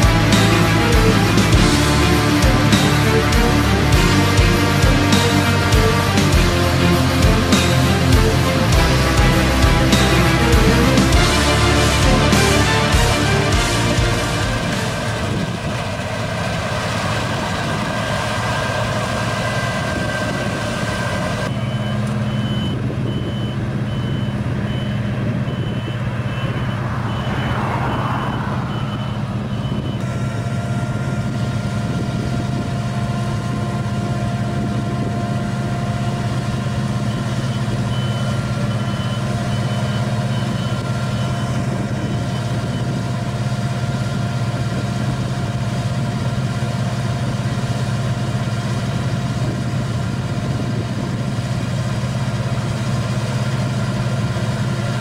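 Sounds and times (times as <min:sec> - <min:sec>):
combine harvester engine hum: 0:00.0 - 0:55.0
high warning beeper: 0:19.8 - 0:31.7, 0:36.6 - 0:43.2.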